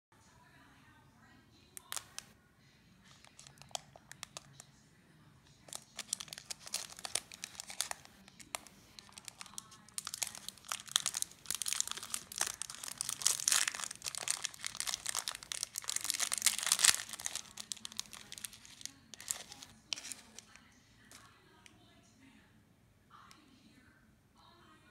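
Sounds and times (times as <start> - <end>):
candy wrapper crinkling: 1.8 - 2.3, 3.1 - 4.6, 5.6 - 21.3.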